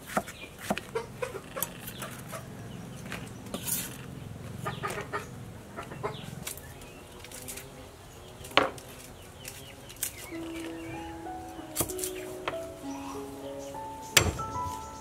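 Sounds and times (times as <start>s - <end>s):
hens clucking: 0.8s - 7.1s, 10.3s - 15.0s
music: 10.3s - 15.0s.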